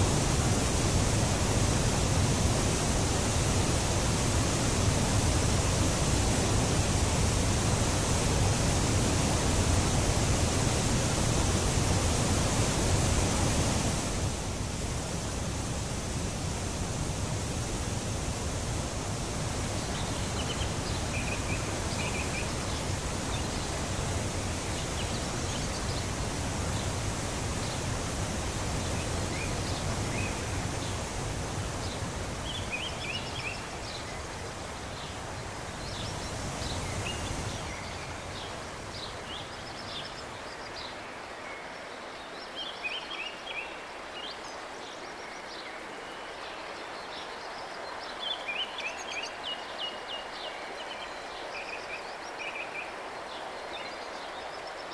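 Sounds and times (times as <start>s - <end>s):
river water rushing: 0.0s - 54.9s
songbirds chirping: 14.6s - 54.9s.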